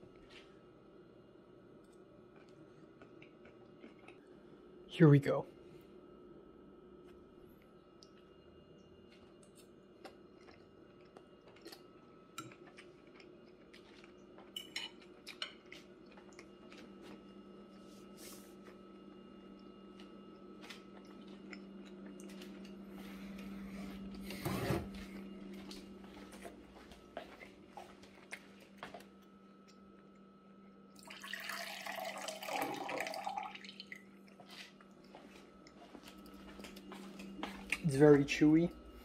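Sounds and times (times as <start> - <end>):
chewing: 1.9 - 4.3, 9.1 - 17.2, 19.6 - 23.5, 25.7 - 29.8.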